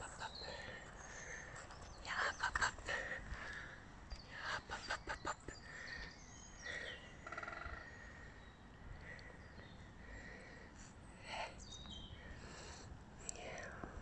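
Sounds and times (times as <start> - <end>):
birds chirping: 0.0 - 14.0
bird trill: 4.8 - 8.6.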